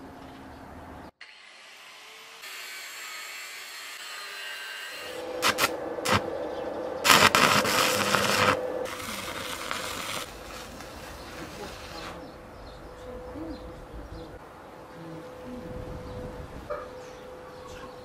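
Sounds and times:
arc welder crackling sizzle: 5.0 - 6.4, 7.0 - 12.2
welding arc striking pops: 5.4 - 6.3, 7.1 - 11.0.

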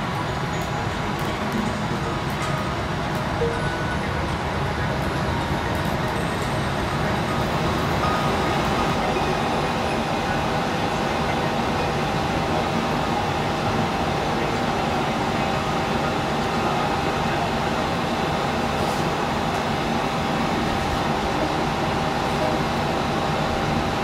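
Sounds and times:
faint steady tones: 0.0 - 24.0
gas furnace roaring: 0.0 - 24.0.

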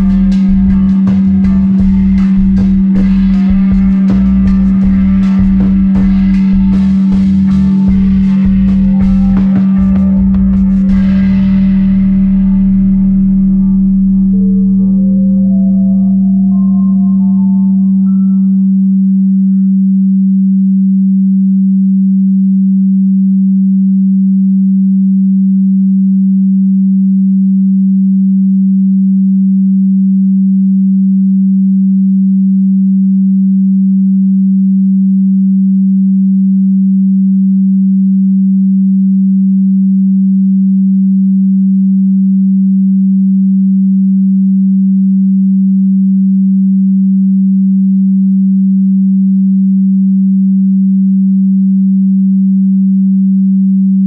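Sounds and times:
low electronic tone: 0.0 - 54.0.

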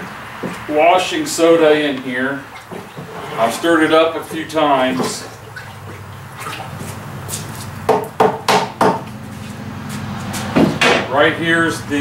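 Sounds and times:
wooden stick knocking: 7.9 - 9.2.

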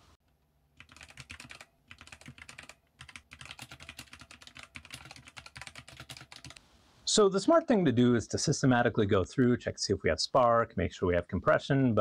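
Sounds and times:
faint typing clicks: 0.8 - 6.6.

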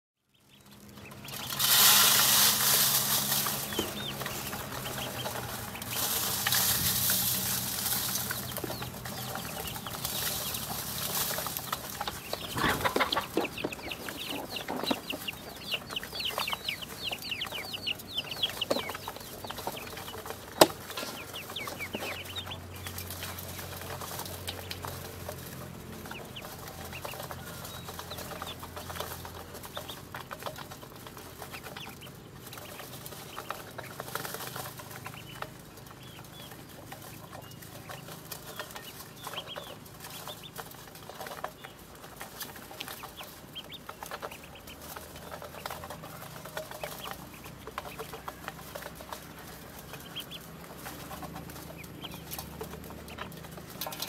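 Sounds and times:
ducklings peeping: 0.2 - 54.0.

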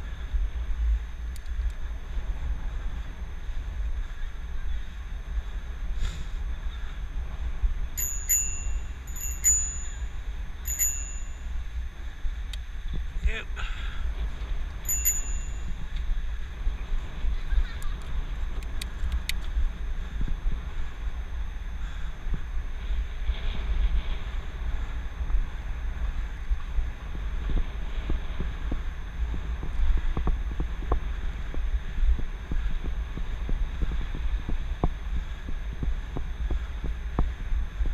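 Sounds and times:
wind rumble on microphone: 0.0 - 37.9
bicycle bell dinging: 8.0 - 11.8, 14.8 - 16.1.

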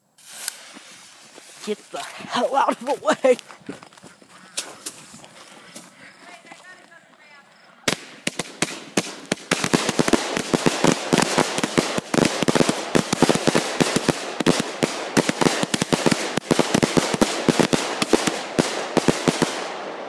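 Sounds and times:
fireworks crackling: 0.0 - 4.0, 4.6 - 20.0
fireworks barrage of sharp bangs: 7.8 - 20.0.

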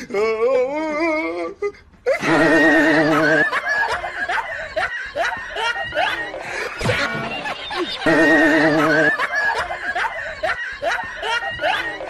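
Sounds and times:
high-pitched giggling: 2.1 - 12.0.

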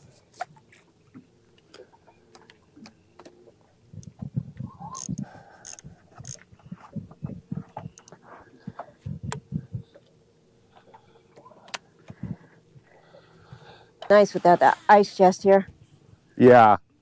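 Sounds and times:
faint steady hum: 0.0 - 17.0
fishing reel being cranked: 4.8 - 6.4.

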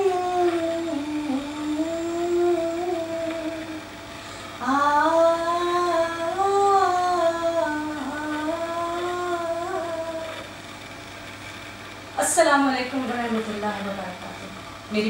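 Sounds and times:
woman singing solo: 0.0 - 3.8.

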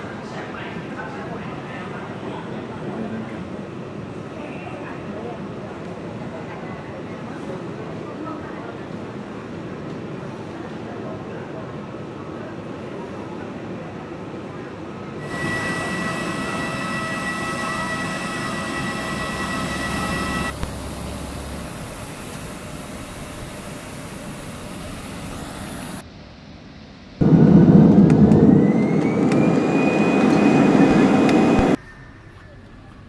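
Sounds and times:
high whistling tones: 15.2 - 26.0, 28.4 - 32.4
jet engine whine rising: 15.2 - 26.0, 27.2 - 31.8
jet engines roaring: 15.2 - 26.0, 27.2 - 31.8.

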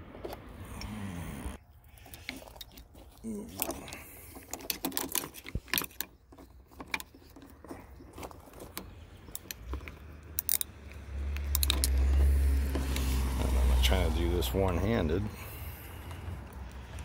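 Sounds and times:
metal wrench clicking on bolt: 9.3 - 12.3.

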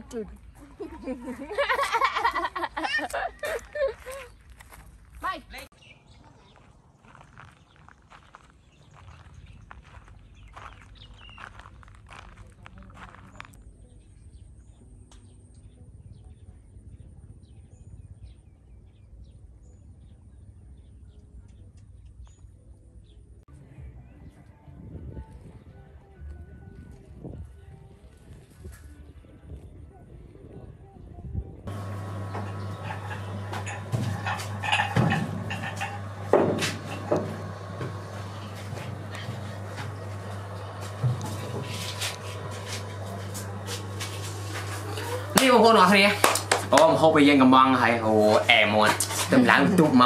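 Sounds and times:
small birds chirping: 4.0 - 23.4, 31.7 - 45.3
low steady rumble: 31.2 - 47.2
low hum: 31.3 - 50.0
dishes clattering on a table: 32.4 - 37.9.

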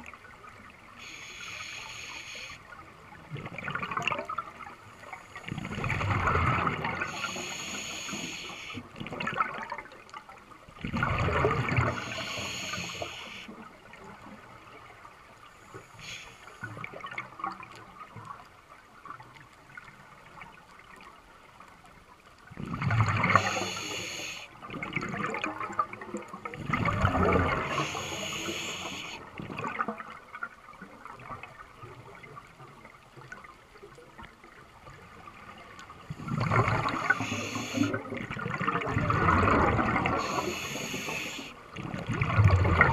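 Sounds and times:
underwater water noise: 0.0 - 42.9
scuba regulator breathing: 1.0 - 2.6, 7.0 - 8.8, 11.8 - 13.5, 15.8 - 16.6, 23.2 - 24.6, 27.5 - 29.2, 36.7 - 38.0, 40.0 - 41.6
bubbles: 3.2 - 4.6, 5.5 - 7.5, 9.0 - 9.9, 10.8 - 12.5, 22.5 - 23.9, 24.6 - 30.2, 35.9 - 42.9.

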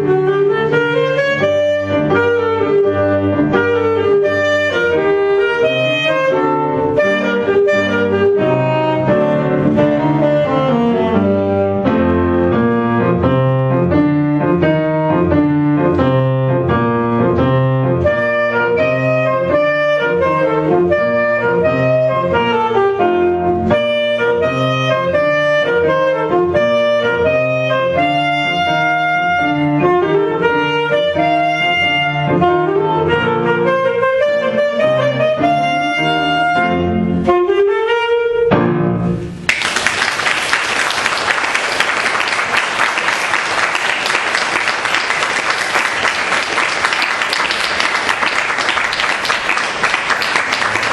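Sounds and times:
alto saxophone: 0.0 - 38.7
piano accompaniment: 0.0 - 50.9
audience applause: 39.5 - 50.9.

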